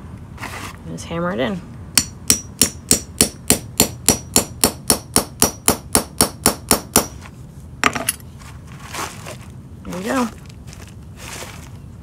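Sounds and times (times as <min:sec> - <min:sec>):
hammer striking metal tool: 0:02.0 - 0:07.1.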